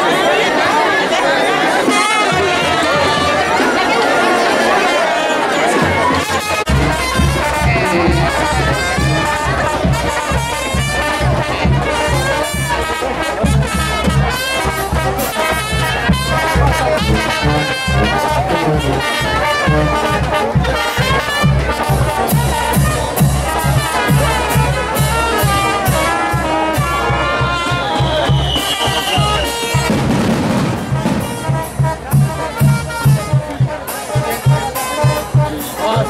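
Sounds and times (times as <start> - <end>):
brass band music: 0.0 - 36.0
steady bass beat: 6.7 - 12.0.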